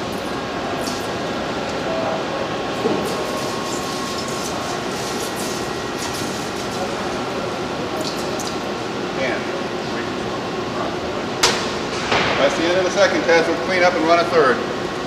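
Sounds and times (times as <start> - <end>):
liquid sizzling on hot coil: 0.0 - 1.8, 3.0 - 8.8.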